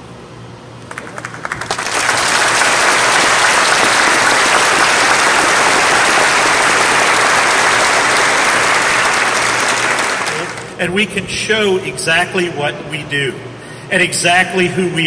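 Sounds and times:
audience applauding: 0.9 - 10.8.

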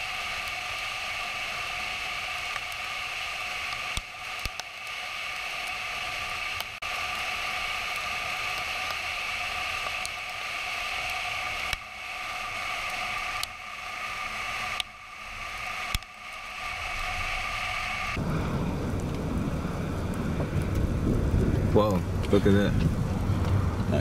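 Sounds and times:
constant high whine: 0.0 - 24.0
vehicle road rushing noise: 16.5 - 24.0.

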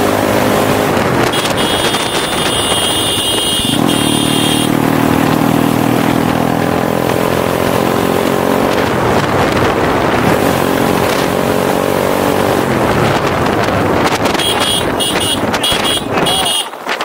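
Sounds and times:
motorcycle engine running: 0.0 - 16.6
wind buffeting microphone: 0.4 - 3.9, 5.0 - 17.0.

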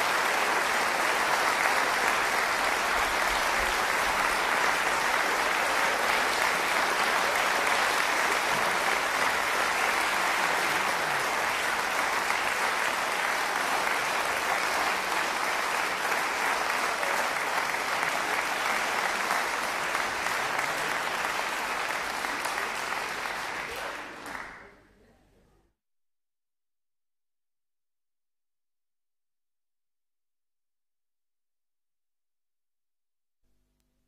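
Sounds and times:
audience applauding: 0.0 - 24.9.

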